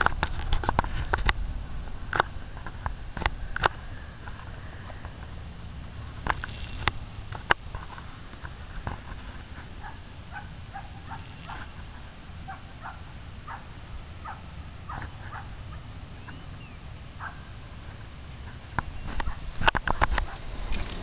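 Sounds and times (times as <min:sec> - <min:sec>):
steady low rumble: 0:00.0 - 0:21.0
animal calling: 0:09.8 - 0:17.6.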